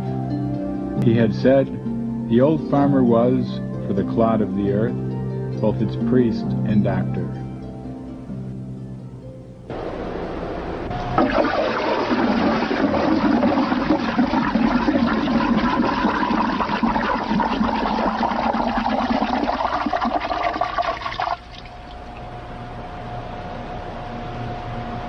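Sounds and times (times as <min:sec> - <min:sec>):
water rushing and gurgling: 0:11.2 - 0:21.8.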